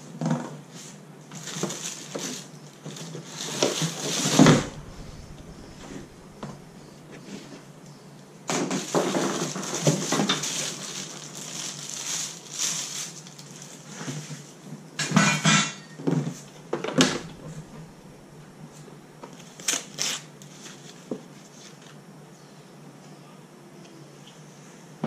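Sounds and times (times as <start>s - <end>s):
plastic wrapping crinkling: 9.5s - 13.9s.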